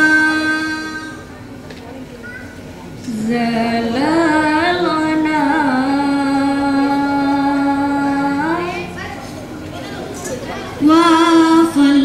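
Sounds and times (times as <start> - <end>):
woman singing into a microphone: 0.0 - 1.3, 3.0 - 8.9, 10.8 - 12.0.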